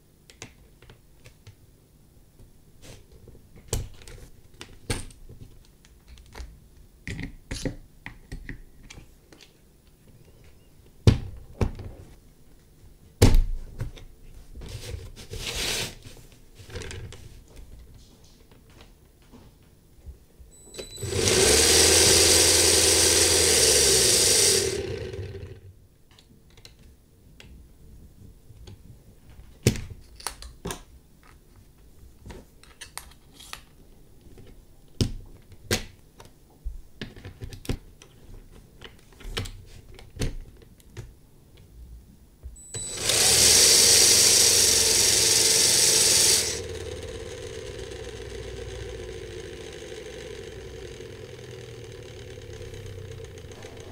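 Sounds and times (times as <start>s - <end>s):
small electric motor spinning: 20.8s - 25.7s, 42.7s - 53.9s.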